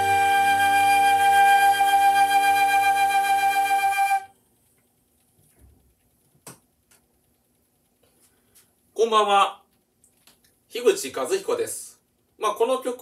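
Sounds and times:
karaoke backing track chord: 0.0s - 1.8s
flute holding a long note: 0.0s - 4.3s.

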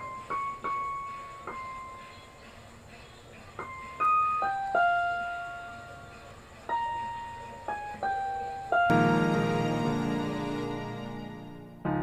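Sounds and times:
keyboard playing slow melody: 0.0s - 12.0s
fuller keyboard chord: 3.6s - 12.0s.

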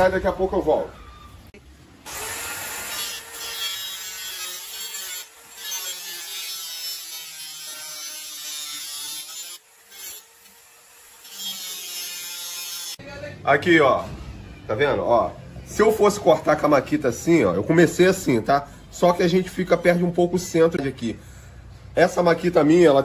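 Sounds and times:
electric saw cutting plastic pipe: 2.0s - 13.0s.

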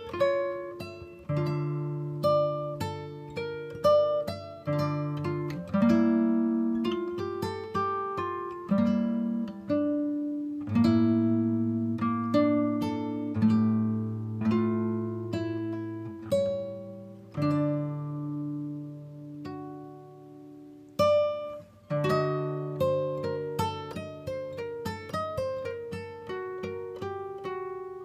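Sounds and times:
plucked acoustic guitar: 0.0s - 28.0s.

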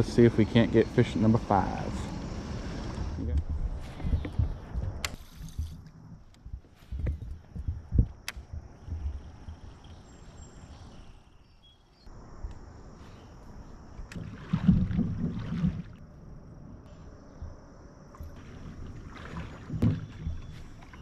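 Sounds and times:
kayak knocking: 6.5s - 9.7s, 17.3s - 21.0s
person wading in shallow water: 12.9s - 16.3s, 18.1s - 21.0s.

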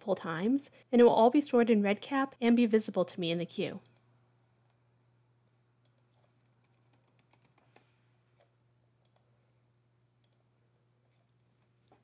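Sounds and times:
keyboard typing: 5.8s - 7.9s, 9.0s - 9.3s, 10.2s - 10.5s.

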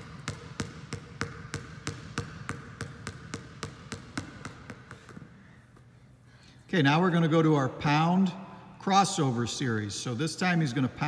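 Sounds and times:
basketball bouncing on gym floor: 0.0s - 5.4s.

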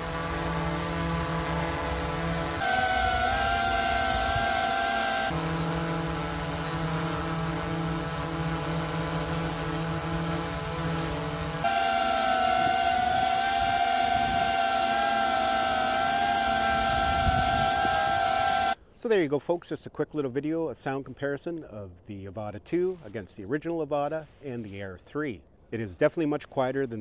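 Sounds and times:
drone propellers whining: 0.0s - 18.8s.

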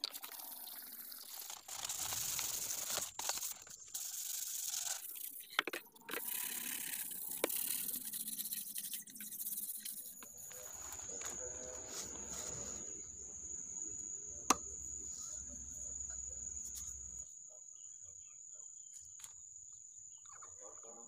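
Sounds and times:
sandpaper scratching plastic pipe: 0.0s - 13.0s.

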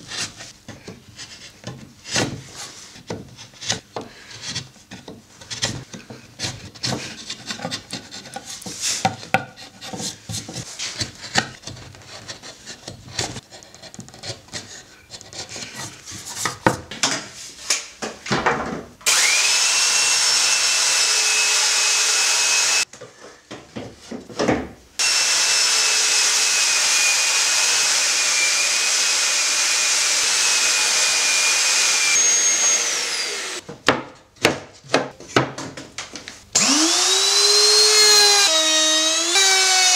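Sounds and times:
chisel scraping wood: 3.4s - 16.7s
belt sander whining: 19.1s - 22.8s, 25.0s - 33.6s, 36.6s - 39.9s.

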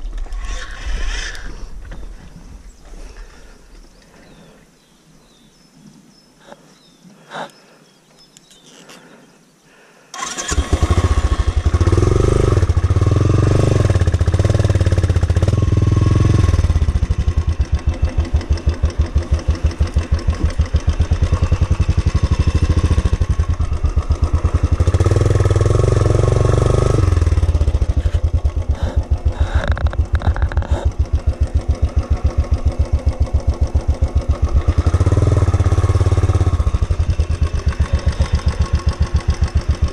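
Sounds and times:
motorcycle engine starting and revving: 10.1s - 39.9s.

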